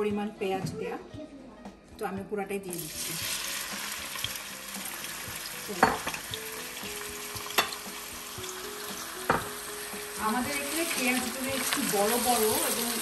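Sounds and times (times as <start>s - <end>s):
onions sizzling in hot oil: 2.7s - 13.0s.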